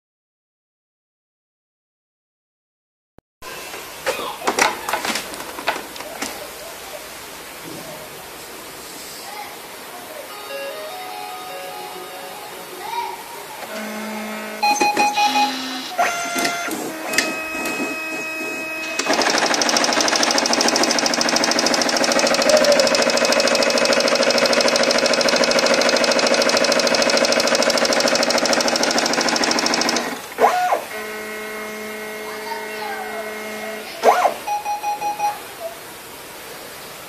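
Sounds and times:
loud steady machine whine: 10.3s - 34.3s
scanner motor tones and clicks: 13.6s - 35.4s.

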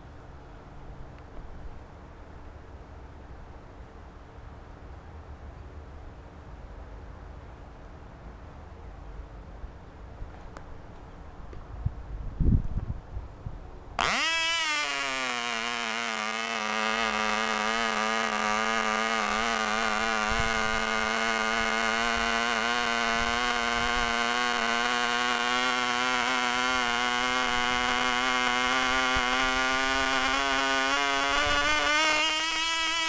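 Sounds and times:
model airplane engine whining: 14.0s - 33.0s.

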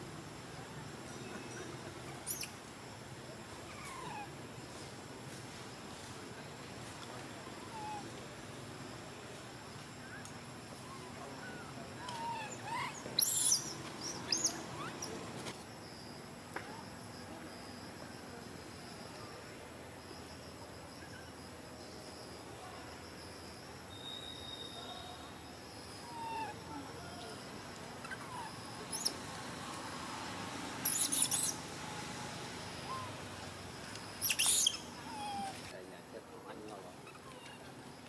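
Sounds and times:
monkey squealing: 12.1s - 15.1s, 28.0s - 29.2s, 30.8s - 31.6s, 34.2s - 35.6s.

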